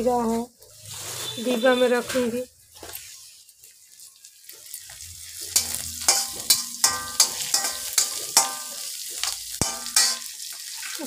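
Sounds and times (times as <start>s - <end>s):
food sizzling in hot oil: 0.0s - 11.0s
metal spatula scraping pan: 5.4s - 10.4s
spatula clinking on pan: 5.5s - 10.4s.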